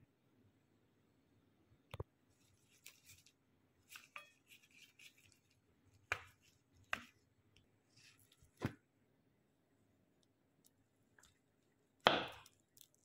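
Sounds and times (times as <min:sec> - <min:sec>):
rustling of wrapper handling: 0:02.3 - 0:07.2, 0:12.4 - 0:13.0.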